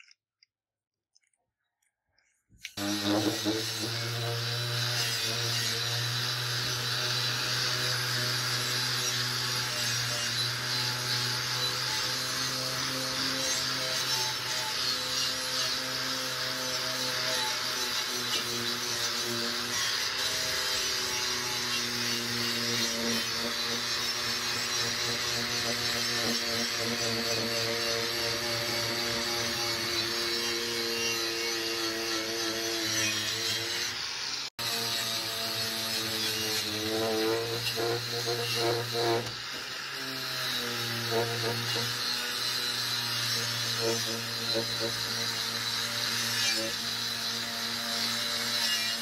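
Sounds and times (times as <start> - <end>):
wire brush grinder scrubbing metal: 2.6 - 49.0.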